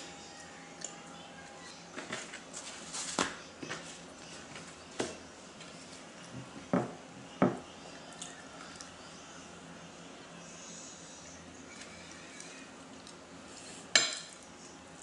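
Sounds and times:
chewing and mouth noises: 0:11.7 - 0:13.5.

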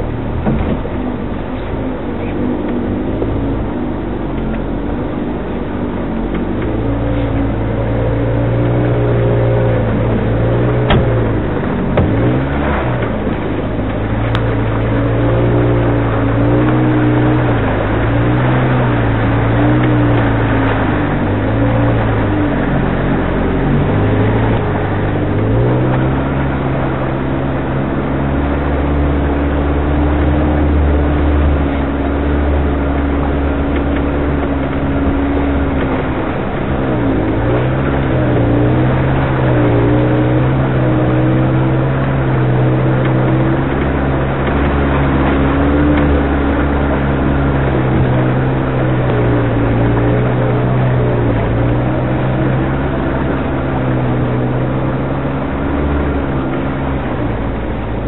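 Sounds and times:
off-road vehicle engine revving: 0:00.0 - 0:58.0.

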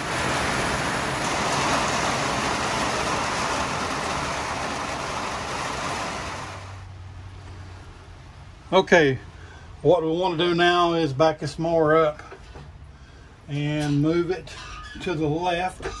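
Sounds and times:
heavy rain on a van roof: 0:00.0 - 0:08.7.

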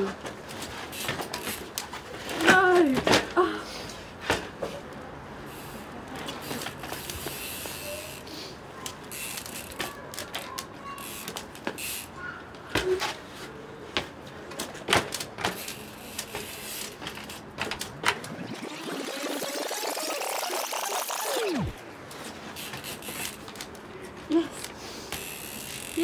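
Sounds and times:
bike clattering on brick ledges: 0:00.0 - 0:03.5, 0:04.2 - 0:04.9, 0:08.8 - 0:18.3.

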